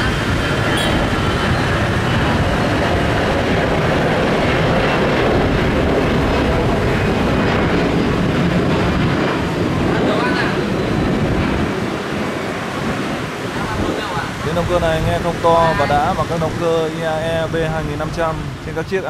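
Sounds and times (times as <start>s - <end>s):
faint engine whine: 0.0s - 14.1s
jet engines rumbling: 0.0s - 19.0s.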